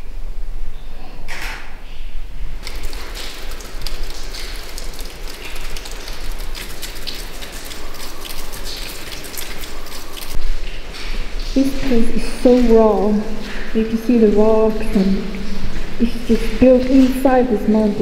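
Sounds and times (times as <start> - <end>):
water dripping onto rock: 2.6 - 18.0.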